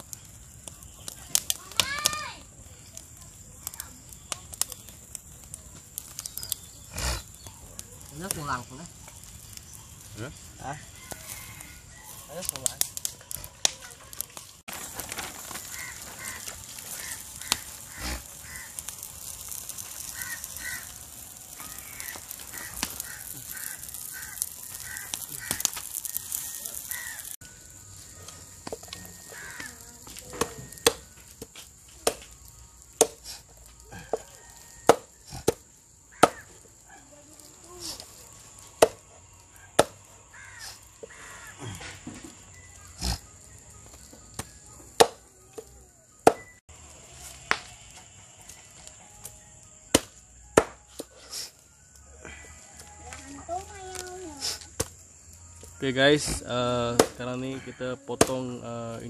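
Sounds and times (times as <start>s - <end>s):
wood fire crackling: 0.0s - 59.0s
bird calling: 15.6s - 18.8s, 20.0s - 27.4s.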